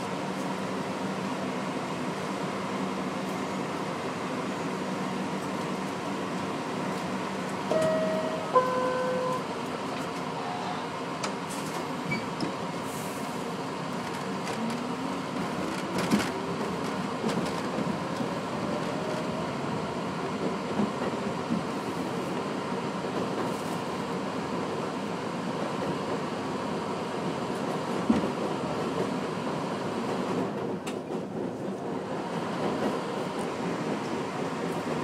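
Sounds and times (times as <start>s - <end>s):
subway car hum: 0.0s - 35.0s
train doors thudding shut: 7.6s - 10.4s
two-tone door chime: 7.7s - 9.5s.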